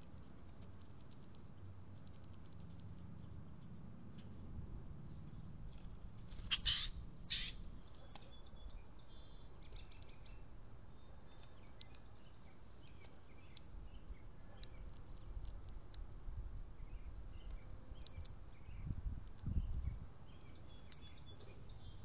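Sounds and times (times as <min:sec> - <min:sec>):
birds chirping: 0:05.0 - 0:15.8, 0:16.7 - 0:22.0
loud bird calls: 0:06.5 - 0:07.6.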